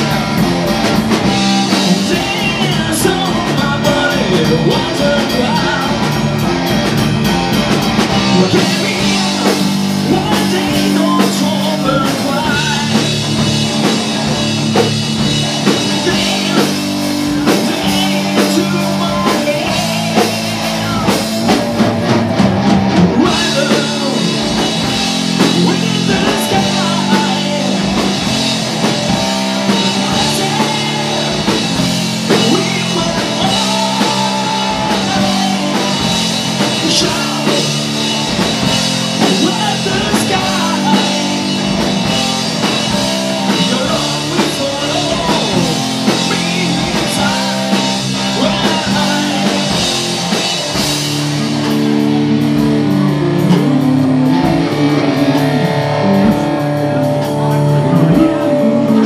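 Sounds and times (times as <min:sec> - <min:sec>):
drum kit: 0:00.0 - 0:59.0
electric guitars: 0:00.0 - 0:59.0
man singing into microphone: 0:01.8 - 0:06.2, 0:08.2 - 0:13.1, 0:15.8 - 0:21.2, 0:23.2 - 0:24.6, 0:25.4 - 0:28.2, 0:29.7 - 0:37.9, 0:39.2 - 0:41.8, 0:43.4 - 0:49.9, 0:57.6 - 0:59.0.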